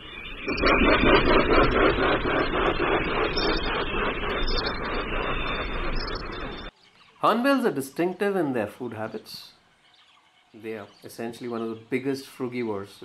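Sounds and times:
heavy wingbeats whooshing: 0.4 - 6.7.

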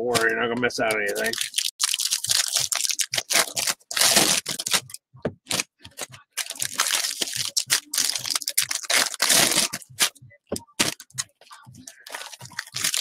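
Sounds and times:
foil wrappers torn and crinkled: 1.0 - 4.9, 6.4 - 10.1, 12.1 - 13.0.

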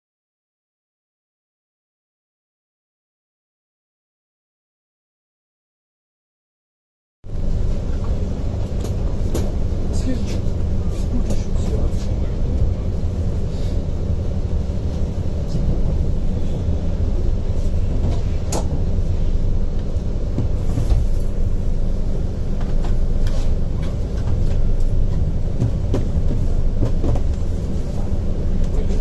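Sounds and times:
train wheels rumbling on rails: 7.3 - 29.0.

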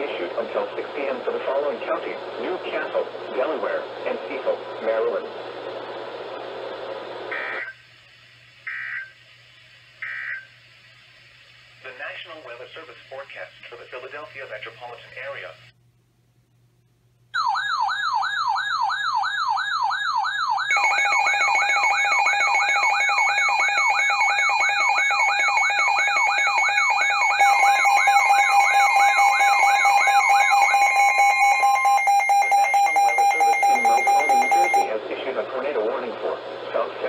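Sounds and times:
steady alarm tone: 8.6 - 9.2, 10.0 - 10.5, 17.4 - 34.9
fast warbling siren: 17.4 - 34.9
steady warning tone: 17.4 - 35.0.

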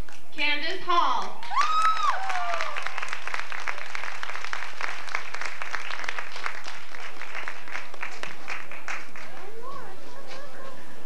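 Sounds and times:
audience applauding: 1.4 - 10.0.

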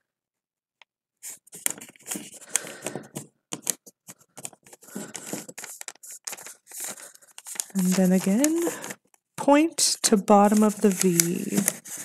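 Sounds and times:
paper being folded and creased: 1.2 - 12.0.

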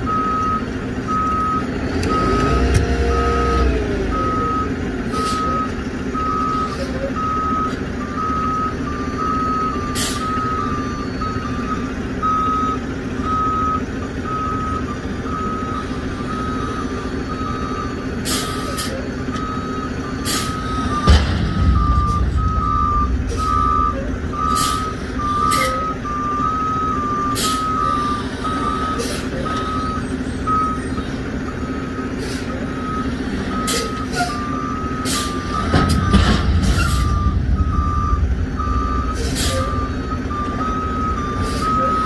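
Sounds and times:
diesel engine revving: 0.0 - 42.0
truck backup alarm beeping: 0.0 - 42.0.

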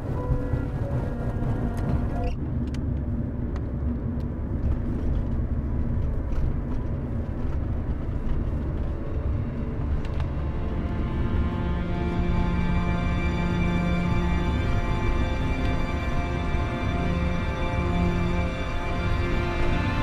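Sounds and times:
music playing: 0.0 - 2.4, 8.3 - 20.0
car driving rumble from inside: 0.0 - 12.2.

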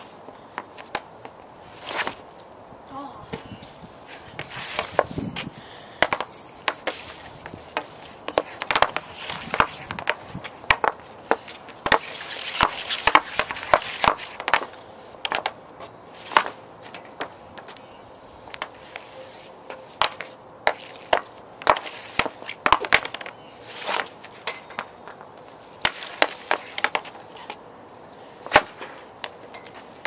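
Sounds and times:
puck and stick scraping: 0.0 - 2.4, 3.3 - 30.0
hockey puck clacking: 6.0 - 15.6, 19.7 - 24.9, 25.8 - 27.5.

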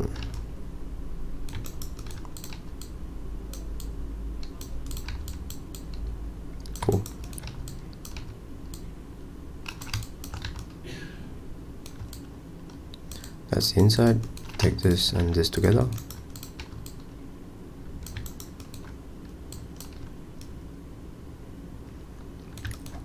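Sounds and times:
keyboard and mouse clicks: 0.0 - 0.5, 1.4 - 8.9, 9.6 - 10.8, 11.8 - 13.4, 14.2 - 17.1, 18.0 - 20.6, 22.4 - 23.0
low steady hum: 0.0 - 23.0.

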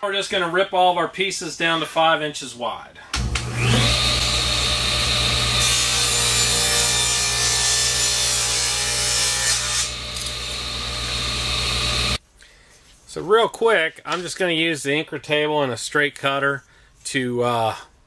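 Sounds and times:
saw blade cutting wood: 3.2 - 12.2
table saw motor hum: 3.2 - 12.2.

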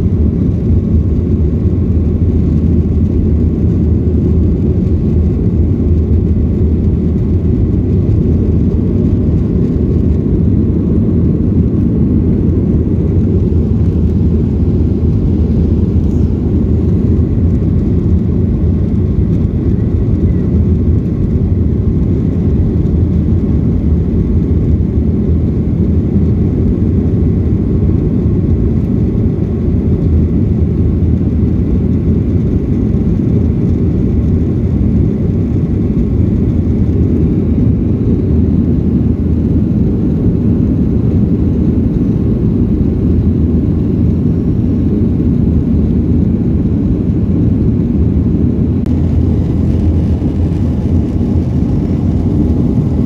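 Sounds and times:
jet engines rumbling: 0.0 - 53.0
rushing air: 0.6 - 22.1, 33.2 - 53.0.

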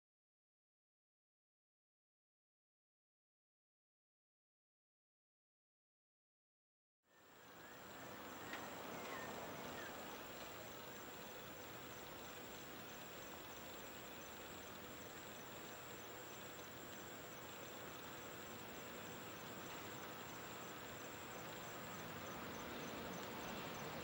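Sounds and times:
background hiss: 7.1 - 24.0
insects chirping trill: 7.1 - 24.0.

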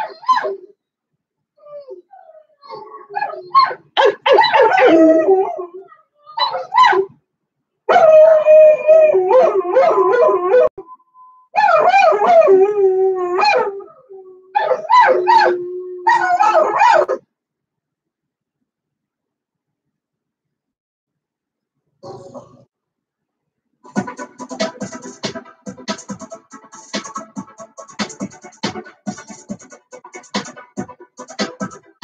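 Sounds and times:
puppy whining and howling: 0.0 - 0.7, 1.6 - 7.1, 7.9 - 10.8, 11.6 - 17.1.

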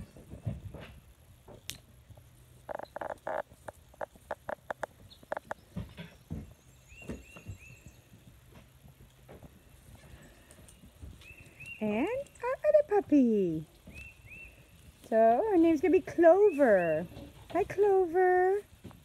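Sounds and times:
goat hooves knocking on wood: 0.0 - 11.7.

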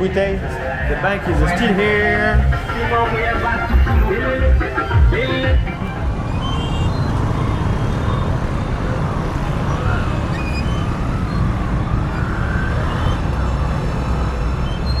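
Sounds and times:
heavy low traffic rumble: 0.0 - 15.0.

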